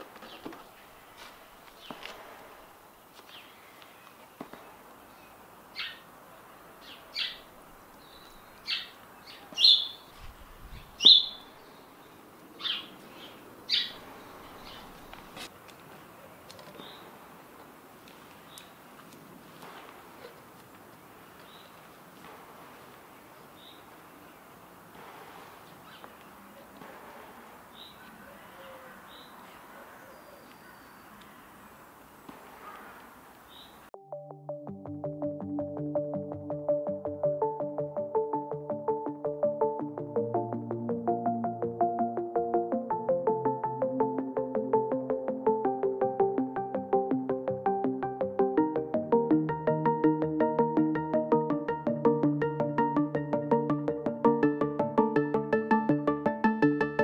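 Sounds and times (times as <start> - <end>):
small bird chirping: 5.2 - 6.1, 6.8 - 11.8, 12.6 - 15.2
soft rustling: 10.1 - 11.0, 14.3 - 24.3.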